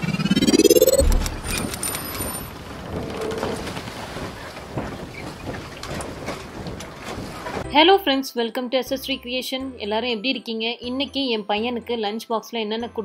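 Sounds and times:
rising whoosh: 0:00.0 - 0:02.0
scattered clicks: 0:00.7 - 0:02.5
deep boom: 0:00.9 - 0:01.7.

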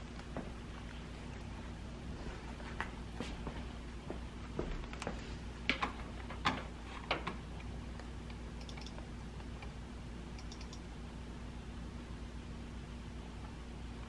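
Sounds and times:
computer mouse clicks: 0:08.0 - 0:09.8, 0:10.4 - 0:10.9.

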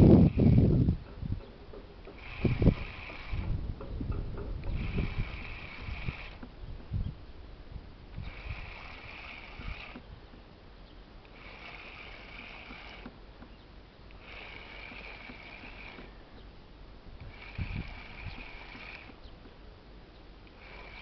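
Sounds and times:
spinning reel cranking: 0:00.0 - 0:00.9, 0:02.0 - 0:03.6, 0:04.3 - 0:06.6, 0:08.1 - 0:10.1, 0:11.2 - 0:16.3, 0:17.2 - 0:19.3, 0:20.4 - 0:21.0.

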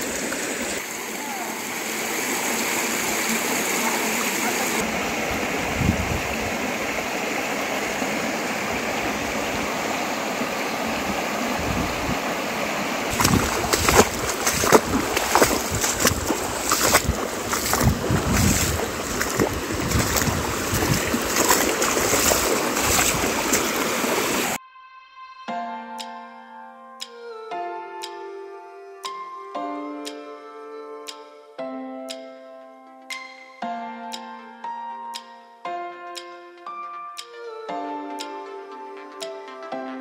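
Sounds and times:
river running over rocks: 0:00.0 - 0:24.6
footsteps splashing through water: 0:13.1 - 0:24.6.

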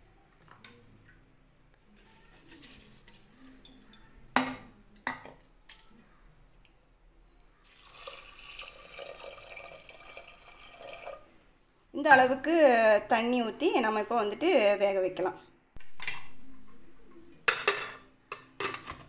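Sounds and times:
water pouring into pot: 0:02.4 - 0:03.8, 0:07.6 - 0:11.3.

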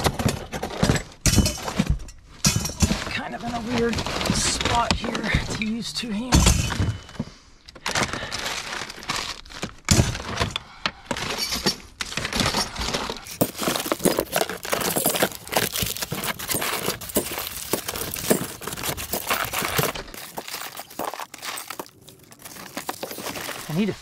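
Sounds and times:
scrap metal clattering: 0:11.2 - 0:23.9.

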